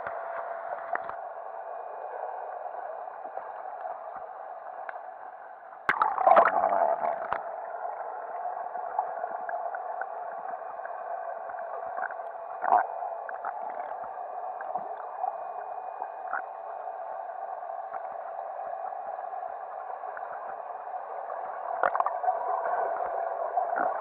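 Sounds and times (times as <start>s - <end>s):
small bubble clicks: 5.8s - 7.5s, 21.8s - 22.2s.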